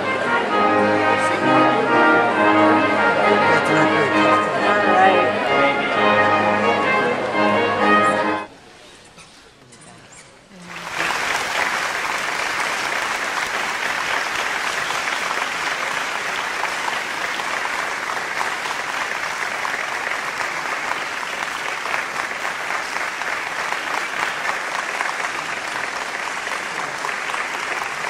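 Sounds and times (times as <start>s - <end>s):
audience applauding: 10.6s - 28.0s.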